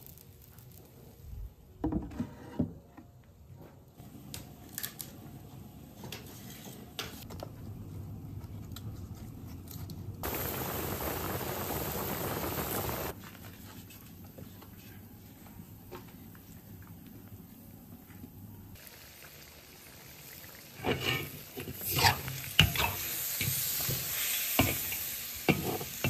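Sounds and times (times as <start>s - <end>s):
loud steady hiss: 10.2s - 13.2s.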